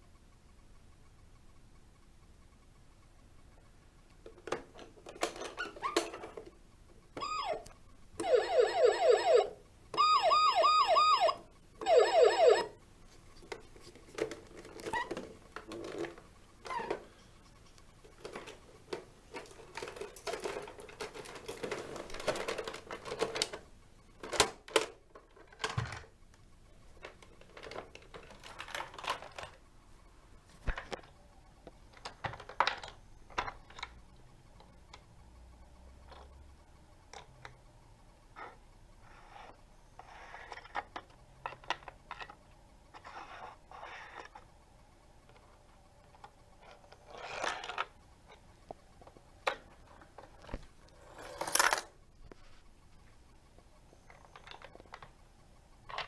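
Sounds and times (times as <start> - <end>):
plastic toy clicks and rattles: 4.2 - 6.6, 18.0 - 26.2, 26.9 - 29.6, 31.9 - 34.0, 40.0 - 44.5, 45.2 - 48.4, 54.0 - 55.2, 55.8 - 56.0
toy siren warbling wail: 7.2 - 12.8.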